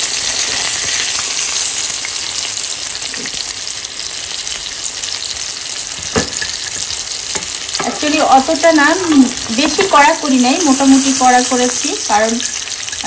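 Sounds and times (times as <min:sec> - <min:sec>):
fish sizzling in hot oil: 0:00.0 - 0:13.0
sharp knock: 0:06.1 - 0:06.4.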